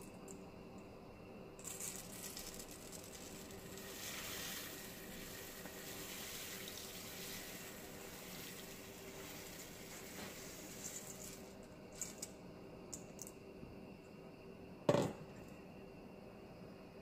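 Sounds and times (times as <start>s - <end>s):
rice pouring into broth: 2.2s - 11.5s.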